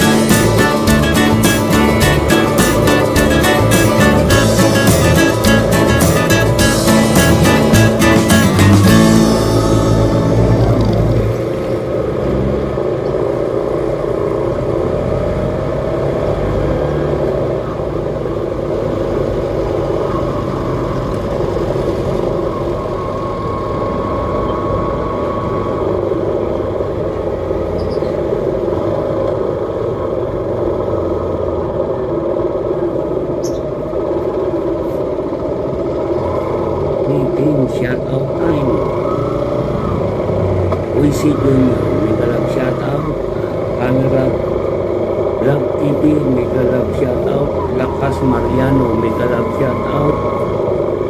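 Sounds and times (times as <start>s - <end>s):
vehicle engine and road noise: 0.0s - 51.0s.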